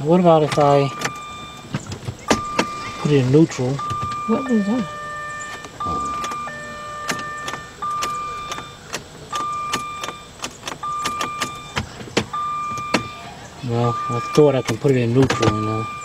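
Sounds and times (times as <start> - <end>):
electronic warning chime beeping: 2.3 - 11.8, 12.4 - 14.7, 15.3 - 16.0.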